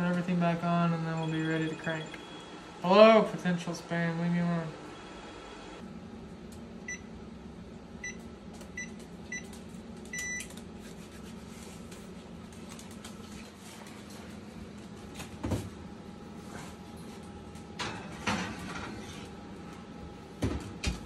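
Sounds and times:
keypad beeping: 10.1s - 10.5s.

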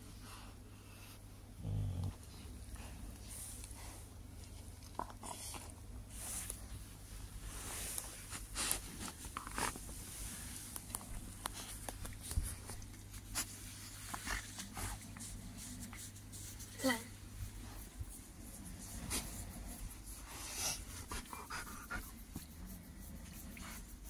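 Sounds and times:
steady low hum: 0.0s - 24.0s
bedding rustling and scratching: 6.1s - 16.8s.

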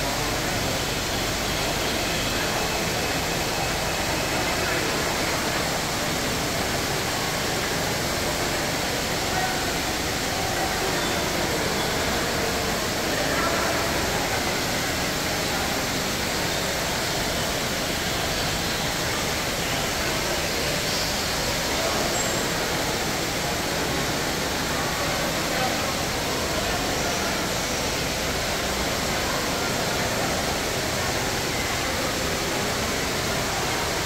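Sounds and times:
indoor fountain water rushing: 0.0s - 34.0s
murmur of voices: 0.0s - 34.0s.

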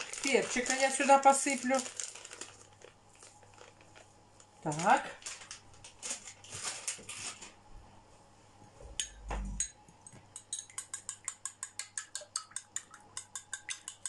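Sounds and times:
teaspoon clinking against cup: 9.0s - 14.0s.

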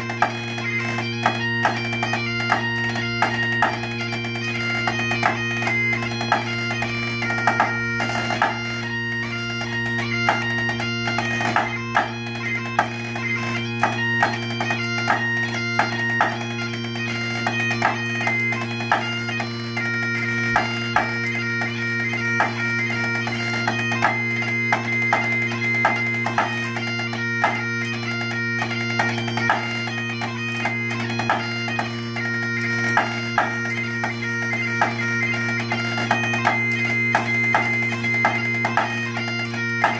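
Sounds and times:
bagpipes playing a tune: 0.0s - 39.9s
drumsticks tapping a practice pad: 1.2s - 8.6s, 9.6s - 13.0s, 13.8s - 16.4s, 17.4s - 19.5s, 20.5s - 21.7s, 22.4s - 22.6s, 23.6s - 29.7s, 30.6s - 31.9s, 32.9s - 34.2s, 34.8s - 39.9s.

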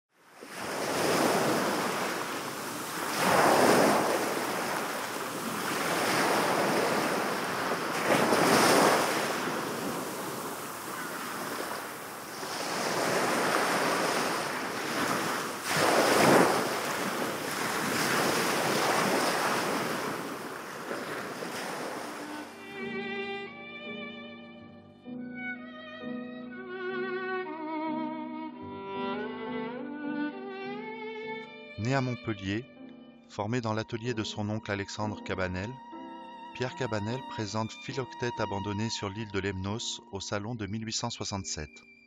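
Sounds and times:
sea waves breaking on shore: 0.2s - 22.8s.

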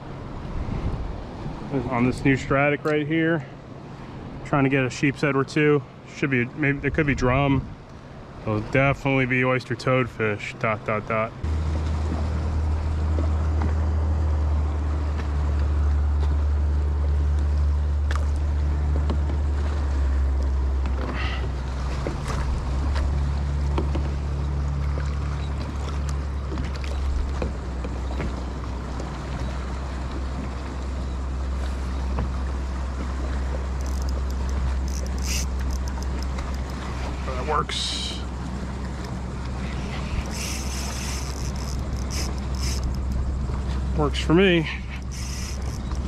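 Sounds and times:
water lapping against hull: 0.0s - 46.0s
wind noise on microphone: 0.4s - 1.8s, 33.8s - 36.3s
boat clicks and knocks: 11.6s - 14.0s, 17.3s - 31.0s, 31.9s - 37.2s, 38.2s - 44.0s.

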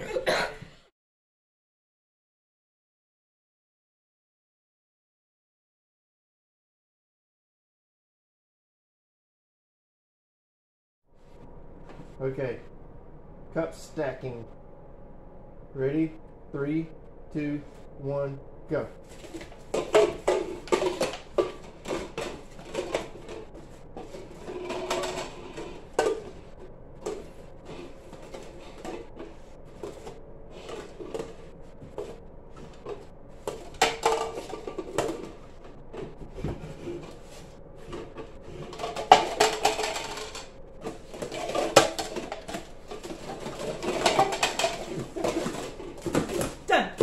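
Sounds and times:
plastic cups clacking: 19.2s - 37.2s, 37.8s - 46.6s.

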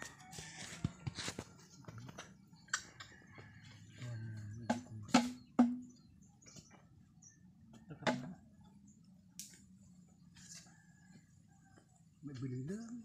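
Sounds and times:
hollow knocks of bamboo tubes: 4.5s - 6.8s, 7.7s - 8.4s.

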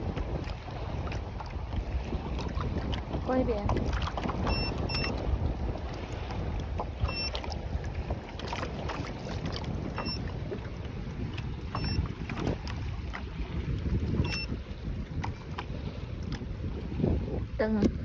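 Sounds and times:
water lapping against plastic hull: 0.0s - 18.0s
wind buffeting microphone: 0.0s - 18.0s
short high beeps: 4.5s - 5.2s, 7.0s - 7.4s, 10.0s - 10.2s, 11.8s - 12.0s, 14.2s - 14.5s.

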